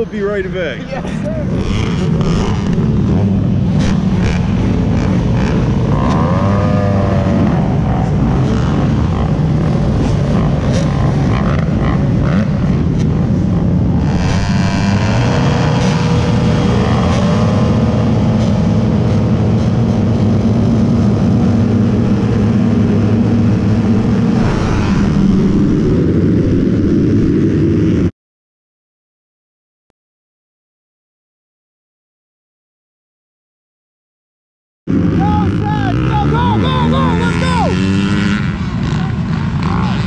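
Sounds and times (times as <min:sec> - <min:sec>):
dirt bike engine revving: 0:01.0 - 0:28.1, 0:34.9 - 0:40.0
rushing wind noise: 0:01.0 - 0:28.1.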